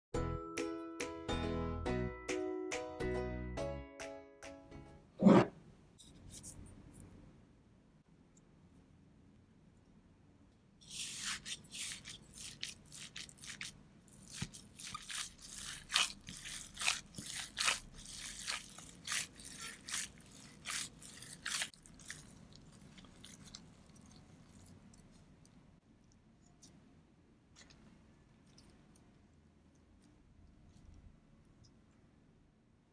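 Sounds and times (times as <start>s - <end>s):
wet squelching of minced meat: 10.8s - 25.5s.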